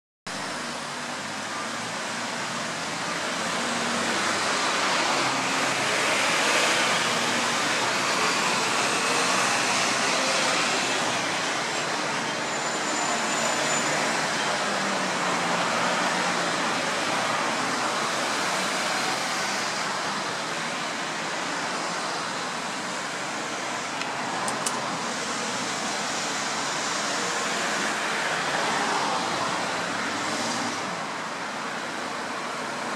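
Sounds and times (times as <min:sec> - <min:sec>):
road traffic passing: 0:00.3 - 0:32.9.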